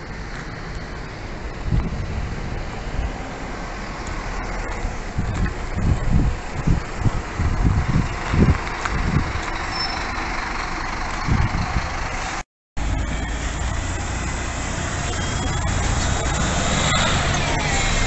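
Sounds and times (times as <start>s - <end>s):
bus engine and road noise: 0.0s - 18.0s
wind buffeting microphone: 1.5s - 3.3s, 4.0s - 9.7s, 11.2s - 12.2s.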